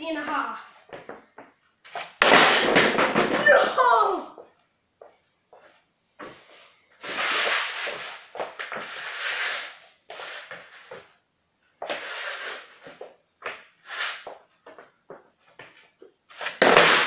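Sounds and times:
skateboard deck scraping on floor: 0:00.9 - 0:03.5, 0:05.5 - 0:11.2, 0:11.8 - 0:17.0.

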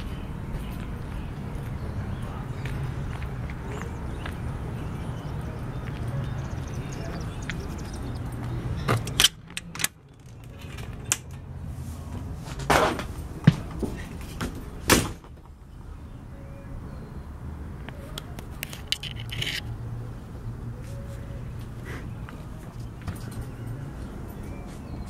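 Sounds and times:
person climbing inside: 0:12.1 - 0:15.4.

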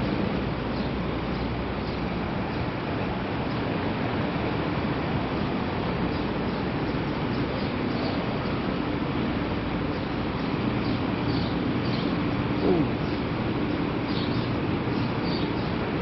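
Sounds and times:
traffic rumble: 0:00.0 - 0:16.0
faint bird chirps: 0:09.9 - 0:15.8.

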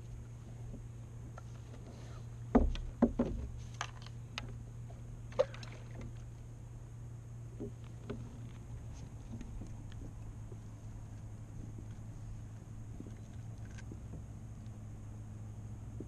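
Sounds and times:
low steady hum: 0:00.0 - 0:16.0
fishing gear knocking on kayak: 0:02.5 - 0:03.5.

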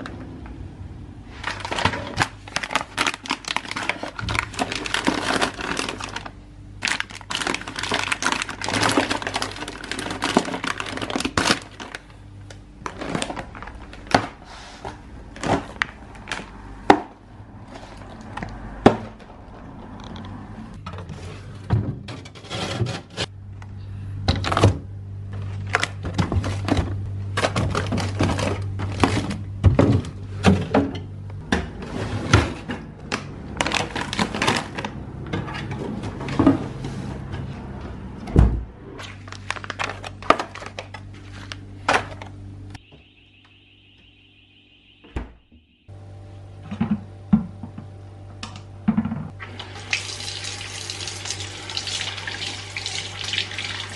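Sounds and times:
steady low hum: 0:00.0 - 0:49.4
kitchen knocks and clatters: 0:33.7 - 0:37.5, 0:48.8 - 0:49.4
high-pitched tone: 0:42.8 - 0:45.9.

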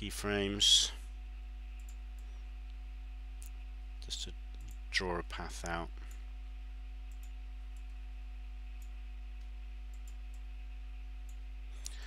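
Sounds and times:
electrical mains hum: 0:00.0 - 0:12.0
computer mouse clicks: 0:01.8 - 0:02.4, 0:07.1 - 0:08.0, 0:08.8 - 0:10.5.

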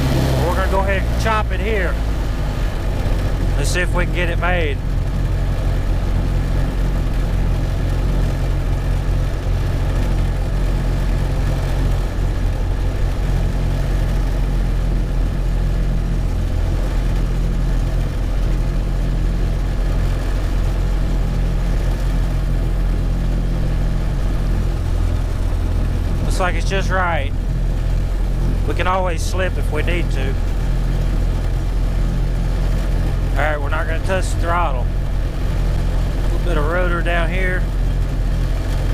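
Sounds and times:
light airplane engine droning: 0:00.0 - 0:38.9.

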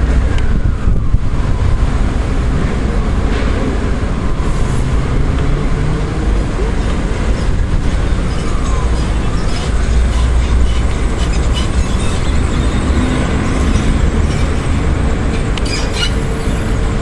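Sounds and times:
strong wind buffeting microphone: 0:00.0 - 0:17.0.

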